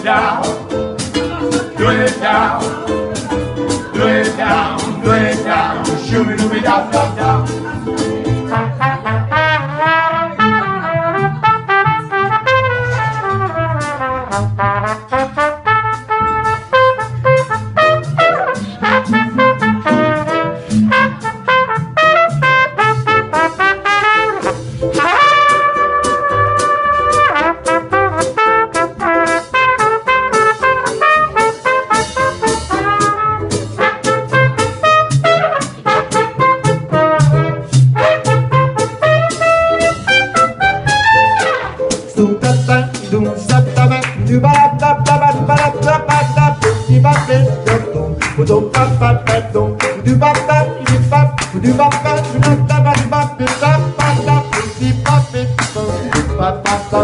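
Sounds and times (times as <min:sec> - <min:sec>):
strummed ukulele: 0:00.0 - 0:57.0
washtub bass: 0:00.0 - 0:57.0
trumpet solo: 0:08.5 - 0:42.0, 0:50.2 - 0:54.8.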